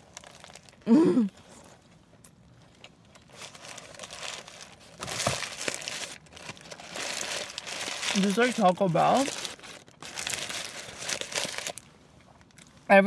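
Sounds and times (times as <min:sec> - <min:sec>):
paper wrapper crinkling: 0:00.0 - 0:00.8, 0:03.0 - 0:12.6
person humming: 0:00.9 - 0:01.3.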